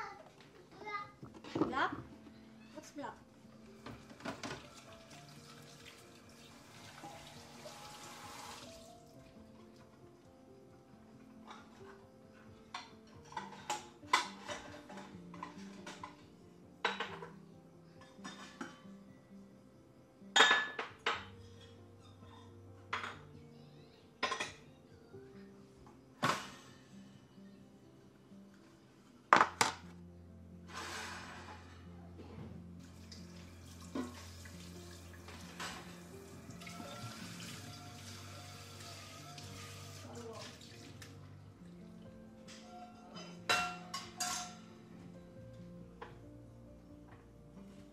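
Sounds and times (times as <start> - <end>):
soft background music: 0.0 - 47.9
tap water running into sink: 4.1 - 8.9, 32.8 - 41.2
dishes clinking: 11.4 - 17.4, 18.0 - 19.0, 20.4 - 23.3, 24.2 - 24.7, 33.8 - 34.4, 42.5 - 44.8.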